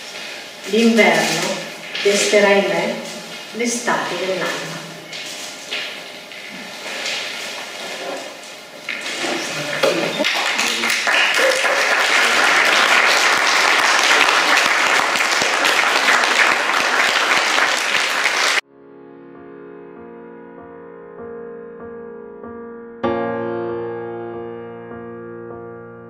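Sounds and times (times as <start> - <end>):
audience applauding: 9.6 - 18.6
soft piano music: 18.6 - 26.0.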